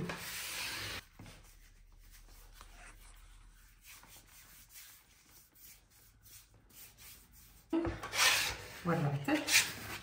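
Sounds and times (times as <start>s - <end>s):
hands rubbing together: 1.3s - 7.6s.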